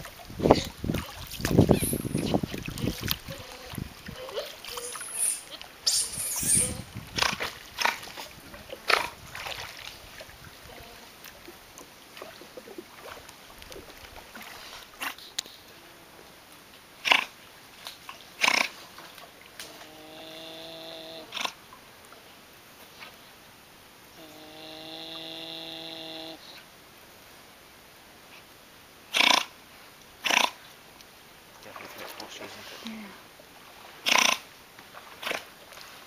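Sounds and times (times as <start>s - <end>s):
otters snort-like calls: 1.6s - 8.1s, 18.4s - 18.8s, 29.1s - 29.5s, 30.2s - 30.6s, 34.0s - 34.4s
otter long pitched call: 4.7s - 6.9s.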